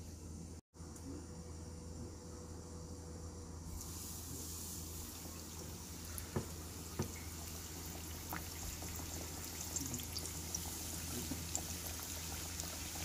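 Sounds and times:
chicken deep-frying in oil: 3.7 - 13.0.

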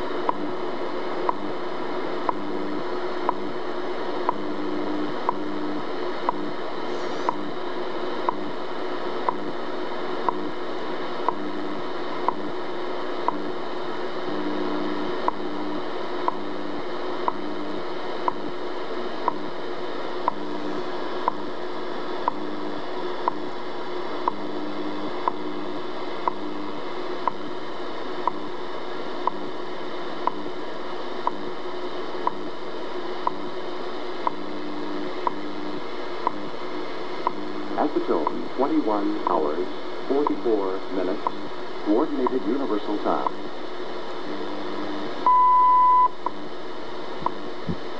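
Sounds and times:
low tone switching on and off: 0.0 - 9.6, 11.2 - 12.6, 14.2 - 19.6, 20.2 - 21.6, 24.2 - 27.5, 44.2 - 46.4, 47.2 - 47.9
radio static hiss: 0.0 - 47.9
time signal ticks: 0.2 - 0.5, 1.2 - 1.5, 2.2 - 2.5, 3.2 - 3.5, 4.2 - 4.5, 5.2 - 5.5, 6.2 - 6.5, 7.3 - 7.5, 8.2 - 8.5, 9.2 - 9.5, 10.2 - 10.5, 11.2 - 11.5, 12.2 - 12.5, 13.2 - 13.5, 15.2 - 15.5, 16.2 - 16.5, 17.2 - 17.5, 18.2 - 18.5, 19.2 - 19.5, 20.2 - 20.5, 21.2 - 21.5, 22.2 - 22.4, 23.2 - 23.5, 24.2 - 24.5, 25.2 - 25.4, 26.2 - 26.5, 27.2 - 27.5, 28.2 - 28.4, 29.2 - 29.4, 30.2 - 30.5, 31.2 - 31.4, 32.2 - 32.4, 33.2 - 33.4, 34.2 - 34.4, 35.2 - 35.5, 36.2 - 36.4, 37.2 - 37.4, 38.0 - 39.4, 40.2 - 40.5, 42.1 - 42.6, 45.3 - 46.4.

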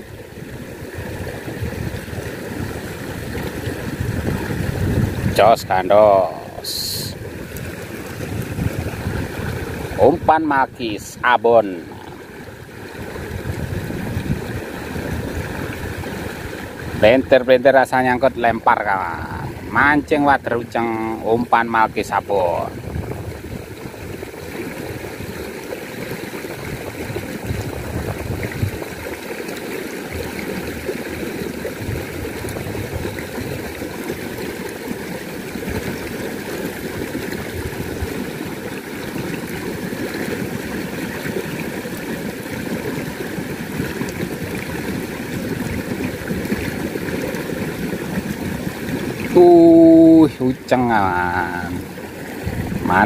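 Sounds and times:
small stream running: 0.0 - 53.0.

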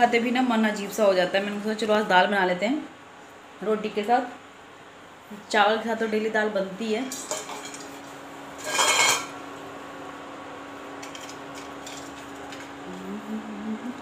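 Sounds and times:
kitchen utensils clattering: 7.0 - 8.0, 8.6 - 9.4, 11.0 - 12.7
low hum: 8.9 - 14.0.

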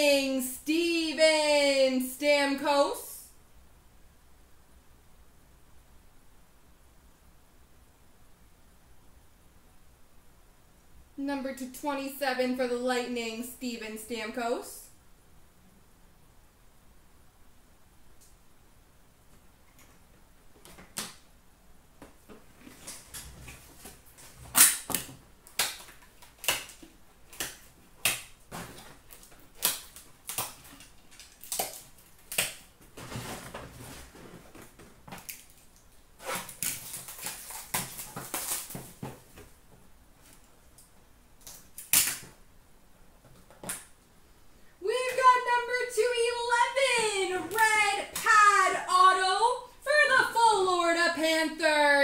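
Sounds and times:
packaging rustling: 22.4 - 39.6.

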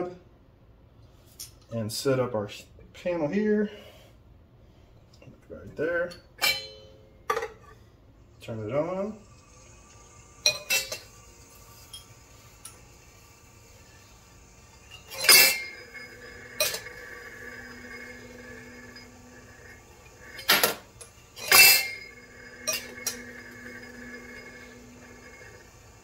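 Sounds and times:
faint machine hum: 0.0 - 26.0
ringing metallic tone: 6.4 - 7.1, 14.8 - 20.5, 21.4 - 25.6.

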